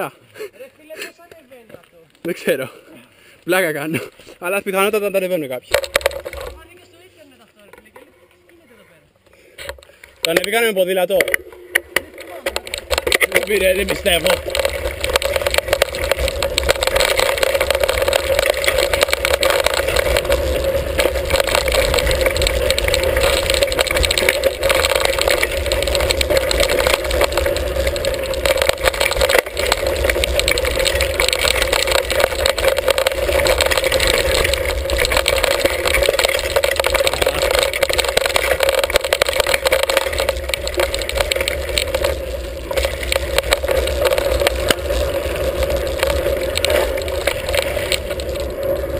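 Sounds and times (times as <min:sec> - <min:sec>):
bike rattling and clicking: 0:04.5 - 0:07.0, 0:09.6 - 0:48.9
steady rushing noise: 0:11.2 - 0:48.9.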